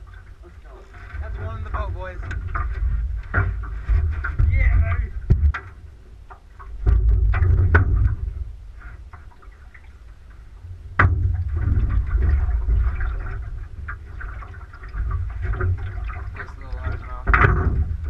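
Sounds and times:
gear knocking in aluminum boat: 0.9 - 9.5, 10.7 - 18.0
wind buffeting microphone: 1.2 - 6.0, 10.7 - 18.0.

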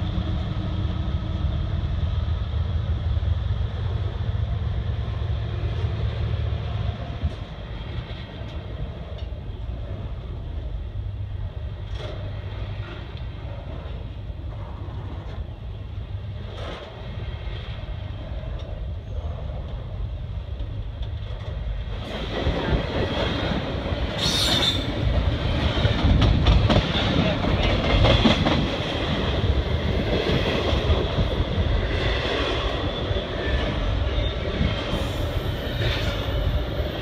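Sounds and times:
freight train rolling past: 0.0 - 37.0
wheels clacking over rail joints: 20.6 - 37.0.

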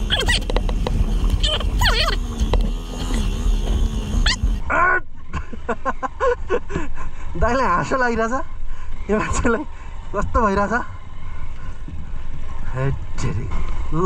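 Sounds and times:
motorcycle engine rumble: 0.0 - 4.8
wind: 0.0 - 14.0.

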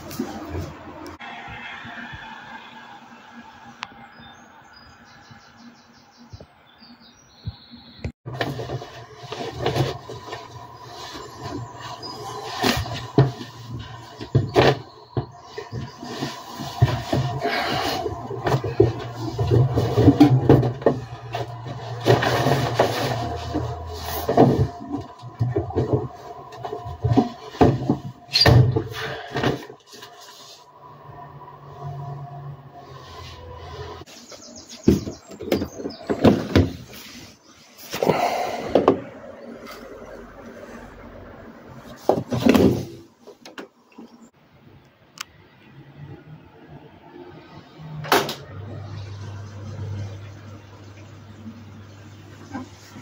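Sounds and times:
laundry basket rustling: 8.3 - 28.7.

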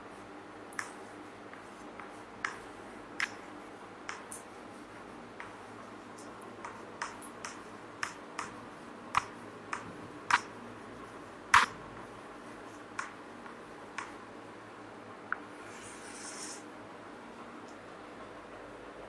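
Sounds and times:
chalk tapping on board: 0.8 - 3.4, 4.1 - 4.5, 5.4 - 10.6, 11.5 - 11.8, 12.7 - 14.2.

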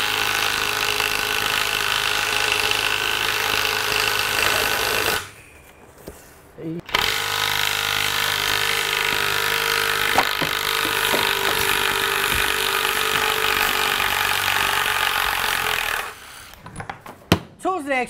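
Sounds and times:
cordless impact driver impacting: 6.9 - 16.6.

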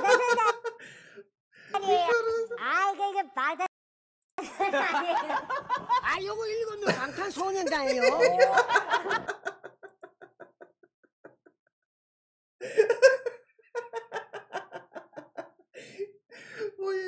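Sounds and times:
man laughing hard: 12.6 - 15.4.

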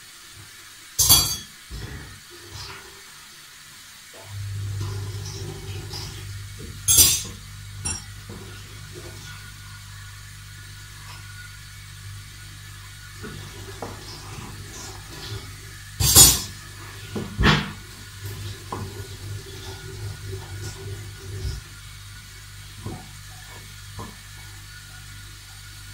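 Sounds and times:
dishes and utensils clattering: 1.0 - 2.8, 5.2 - 9.4, 13.3 - 17.8.

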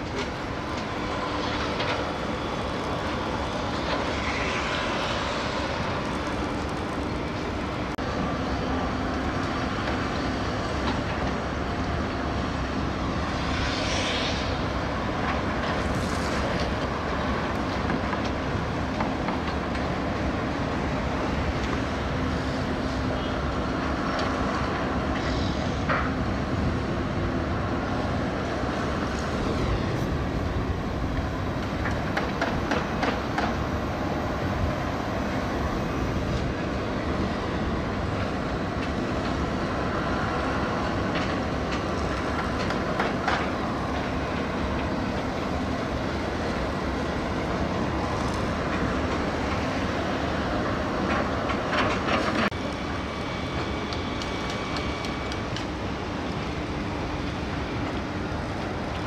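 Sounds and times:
urban rumbling noise: 0.0 - 59.0.

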